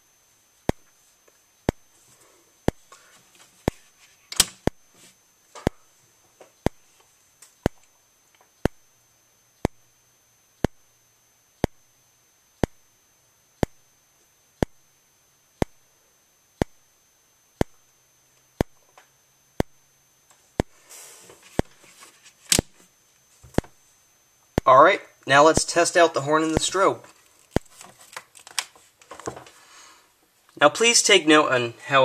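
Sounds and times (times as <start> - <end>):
strobe clicking: 1.6 - 1.9, 4.4 - 4.9, 6.6 - 13.9, 14.5 - 15.0, 15.6 - 15.9, 16.5 - 20.8, 24.4 - 28.7.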